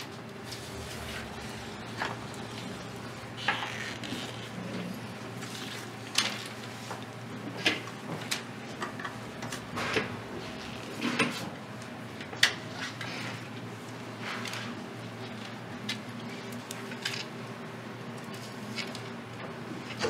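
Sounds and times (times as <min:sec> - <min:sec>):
low steady hum: 0:00.0 - 0:12.8.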